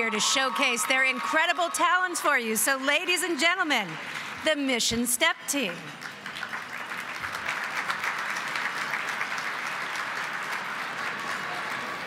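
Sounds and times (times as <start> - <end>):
audience applauding: 0.0 - 4.3, 5.8 - 12.0.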